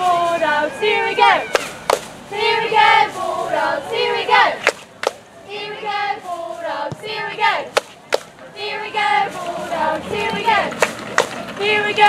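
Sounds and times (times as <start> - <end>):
cheerleaders chanting in unison: 0.0 - 4.8, 5.4 - 11.0, 11.6 - 12.0
sharp claps: 1.5 - 2.1, 4.6 - 5.2, 7.7 - 8.4, 10.7 - 11.4.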